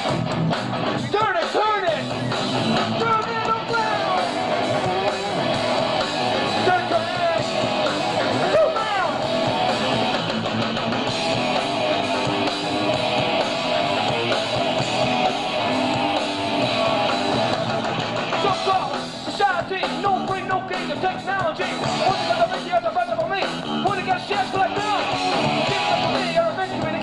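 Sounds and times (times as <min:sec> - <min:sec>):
drums: 0:00.0 - 0:27.0
electric guitar: 0:00.0 - 0:27.0
person shouting vocals: 0:03.0 - 0:04.4, 0:08.3 - 0:09.2.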